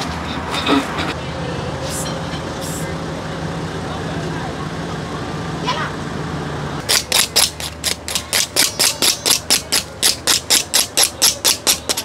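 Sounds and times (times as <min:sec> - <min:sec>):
knife scraping charred skin: 0:06.9 - 0:12.0.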